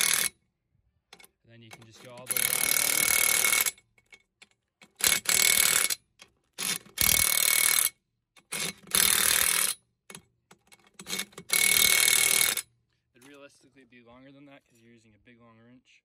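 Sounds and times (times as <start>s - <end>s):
impact wrench hammering lug nuts: 0.0s - 0.4s, 1.1s - 12.6s.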